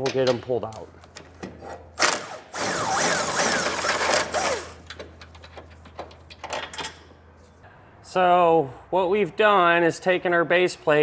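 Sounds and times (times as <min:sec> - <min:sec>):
metallic clicks and clinks: 0:04.8 - 0:07.2.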